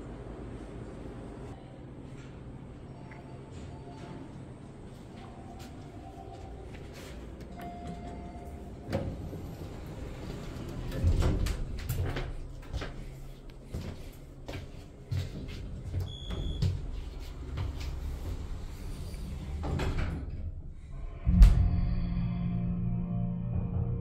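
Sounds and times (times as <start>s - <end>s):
elevator rumble: 0.0s - 24.0s
sliding doors clattering: 8.7s - 12.6s, 17.9s - 20.6s.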